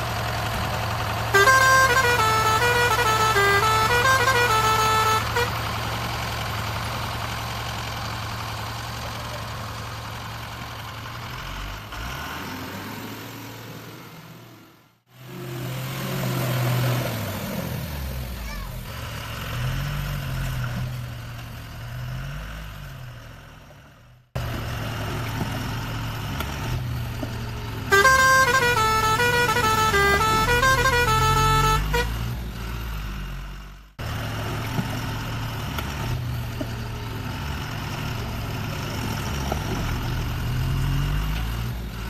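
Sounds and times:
truck engine running: 0:00.0 - 0:12.2, 0:17.2 - 0:42.0
horn playing a short tune: 0:01.4 - 0:05.5, 0:27.9 - 0:32.1.

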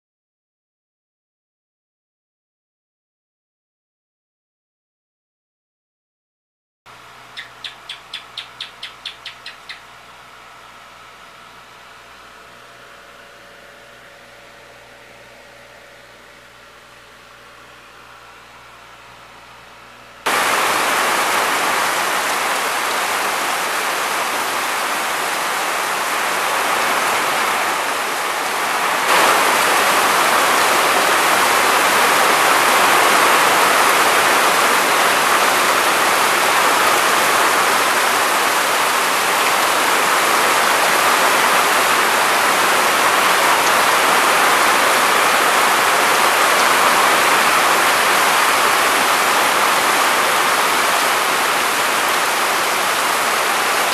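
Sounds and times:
rushing water: 0:20.3 - 0:53.9.

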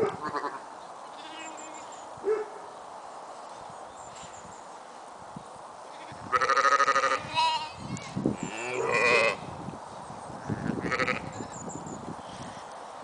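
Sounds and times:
lambs bleating: 0:01.2 - 0:01.9, 0:05.9 - 0:07.8, 0:08.4 - 0:09.4, 0:10.8 - 0:11.4.

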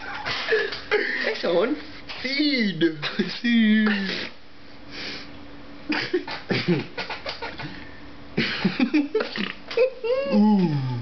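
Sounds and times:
faint steady hum: 0:00.0 - 0:11.0
mouth noises: 0:09.2 - 0:11.0.

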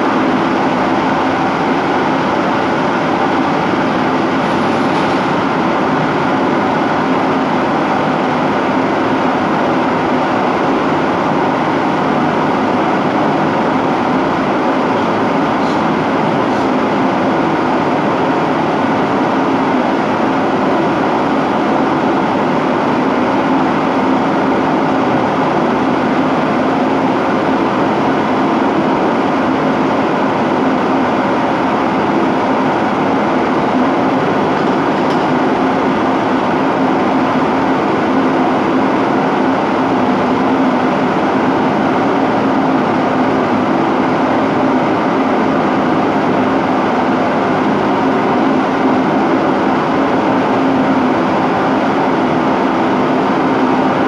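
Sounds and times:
dishwasher rushing noise: 0:04.3 - 0:05.4, 0:15.6 - 0:16.7, 0:34.3 - 0:35.8.

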